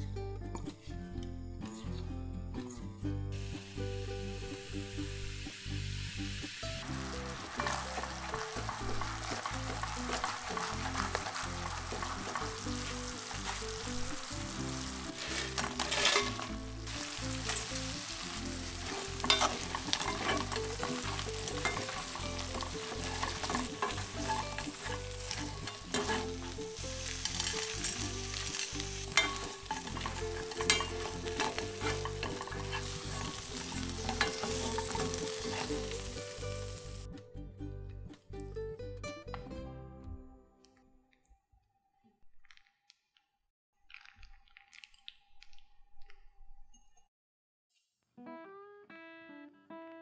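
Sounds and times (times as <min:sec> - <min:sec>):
sauce sizzling and bubbling in a pan: 0:03.4 - 0:37.1
chicken pieces tossed in sauce: 0:07.5 - 0:14.0
spatula scraping the pan: 0:07.5 - 0:36.1.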